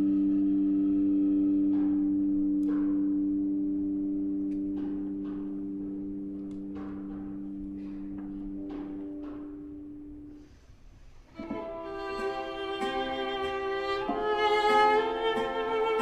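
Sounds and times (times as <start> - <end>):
cimbalom struck notes: 0.0 - 16.0
violin double stop: 11.2 - 16.0.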